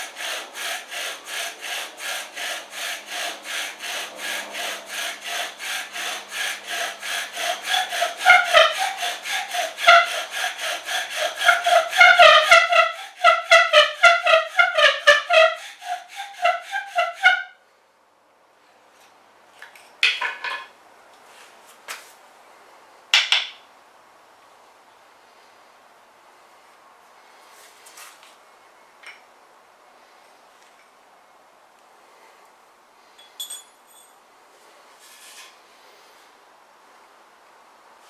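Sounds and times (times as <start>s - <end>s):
bow drill spindle squeaking: 3.2s - 17.5s.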